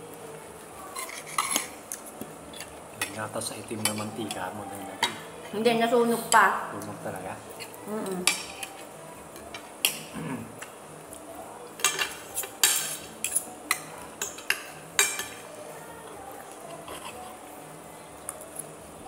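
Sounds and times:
cutlery clinking on ceramic plate: 11.8 - 15.4.

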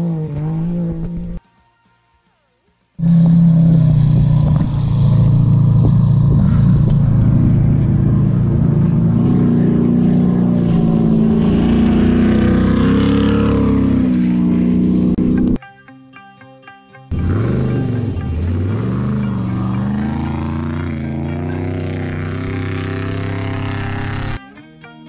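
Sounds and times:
race vehicle engine revving high: 3.0 - 15.6, 17.1 - 24.4.

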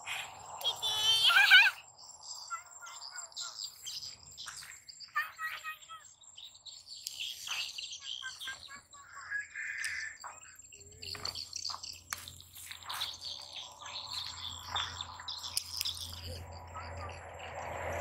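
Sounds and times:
short high chirping calls: 0.1 - 17.2
low engine hum: 13.3 - 18.0.

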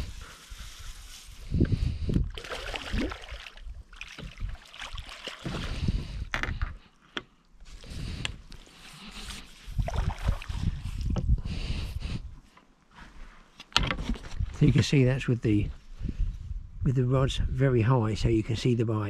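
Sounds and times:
wind on microphone: 0.0 - 4.6, 5.4 - 6.6, 9.6 - 12.4, 15.5 - 17.8
fish splashing and thrashing in water: 2.2 - 6.2, 9.8 - 10.8.

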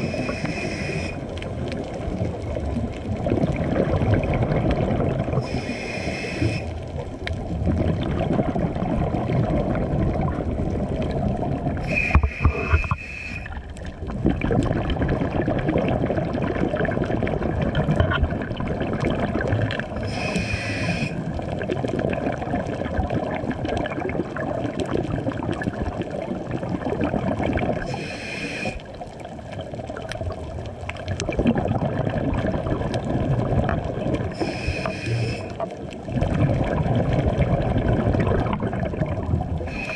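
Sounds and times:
scuba regulator hiss: 0.0 - 1.2, 5.4 - 6.8, 11.8 - 13.5, 20.0 - 21.2, 27.9 - 28.8, 34.3 - 35.6, 39.7 - 39.9
muffled underwater rumble: 0.0 - 39.9.

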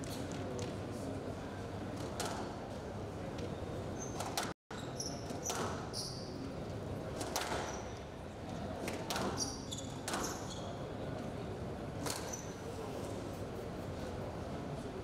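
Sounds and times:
shoes squeaking on court floor: 3.4 - 6.5, 9.2 - 10.9
squash ball hitting rackets and walls: 8.8 - 10.4.

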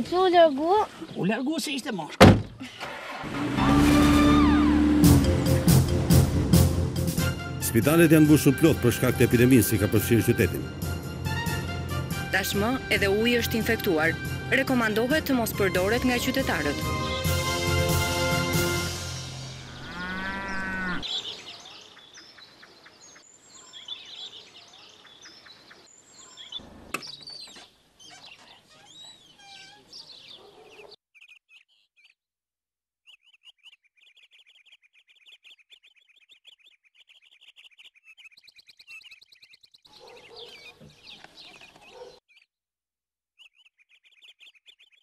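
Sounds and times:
birds chirping: 0.0 - 32.2, 33.0 - 42.6, 43.4 - 45.0
single knock: 2.2 - 2.5
background music: 3.6 - 20.0.

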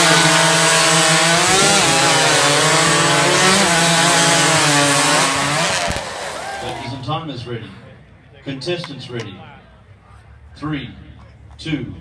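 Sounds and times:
chainsaws cutting logs: 0.0 - 7.1.

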